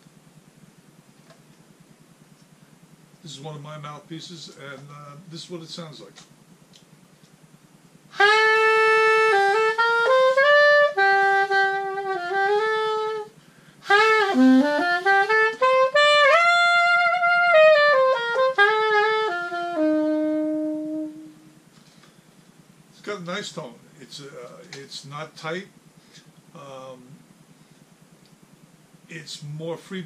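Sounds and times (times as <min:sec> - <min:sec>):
solo soprano saxophone: 0:08.1 - 0:21.6.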